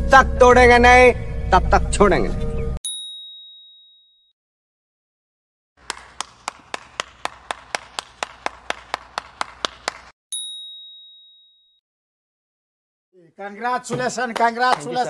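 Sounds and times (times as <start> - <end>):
bright ding: 2.8 - 4.3, 10.3 - 11.8.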